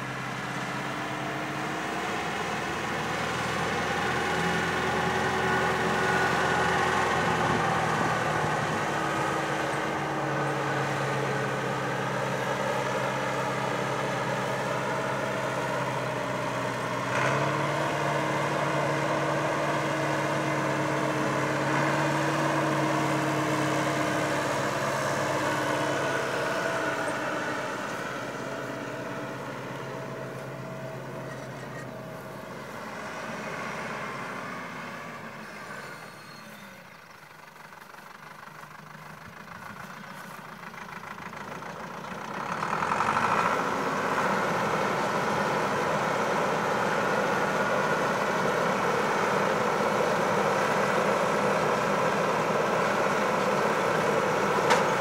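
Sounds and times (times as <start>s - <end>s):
tractor engine droning: 0.0s - 55.0s.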